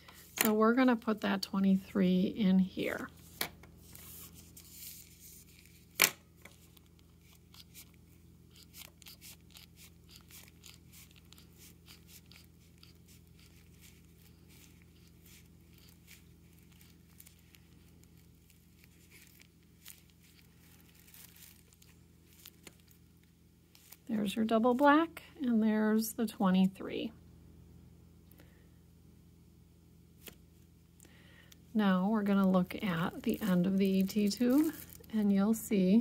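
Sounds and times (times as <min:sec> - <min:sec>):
plastic sleeve crinkling: 0:03.1 - 0:24.9, 0:32.2 - 0:35.7.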